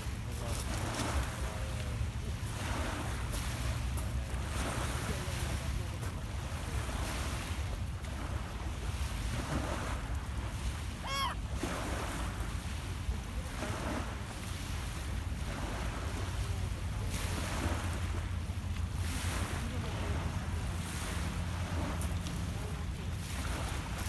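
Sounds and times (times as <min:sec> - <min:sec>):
waves lapping on pebble beach: 0:00.0 - 0:24.0
wind rumble on microphone: 0:00.0 - 0:24.0
short high call: 0:11.0 - 0:11.4.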